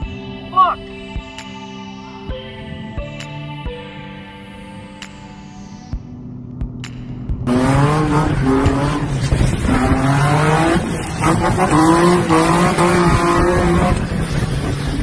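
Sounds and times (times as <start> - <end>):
car engine revving: 7.4 - 15.0.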